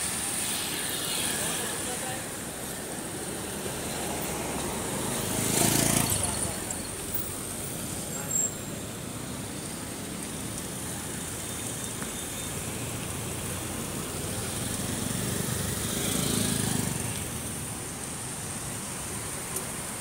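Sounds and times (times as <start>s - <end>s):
street traffic noise: 0.0s - 20.0s
vehicle passing close: 4.2s - 6.8s.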